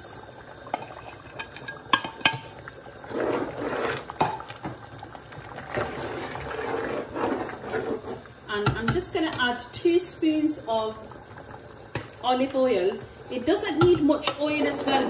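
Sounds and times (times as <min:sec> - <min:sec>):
stirring and splashing liquid: 0:00.6 - 0:09.0.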